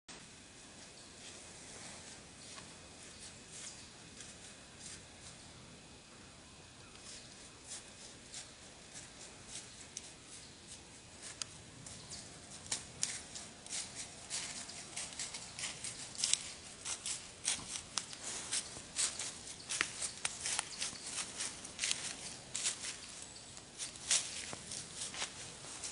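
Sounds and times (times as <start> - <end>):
footsteps crunching dry leaves: 7.0 - 25.9.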